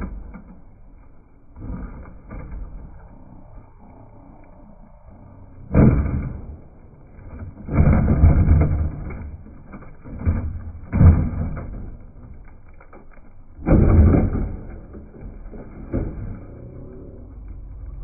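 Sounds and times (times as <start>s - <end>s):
toy truck crashing: 5.7s - 16.9s.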